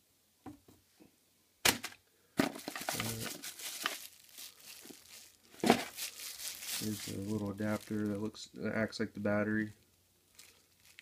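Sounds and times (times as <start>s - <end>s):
sharp plastic crackles: 1.6s - 8.3s, 10.3s - 11.0s
plastic bag crinkling: 2.4s - 8.4s, 9.2s - 11.0s.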